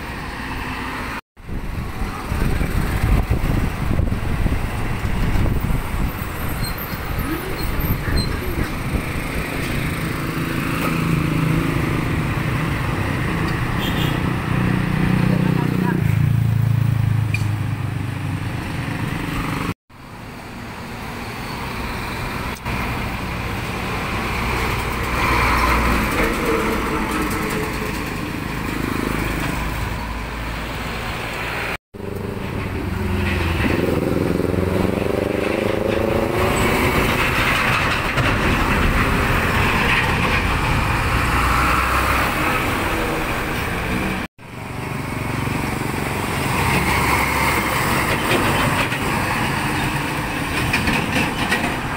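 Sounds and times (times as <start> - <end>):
heavy trucks driving past: 0.0 - 51.9
engine accelerating: 32.0 - 44.3.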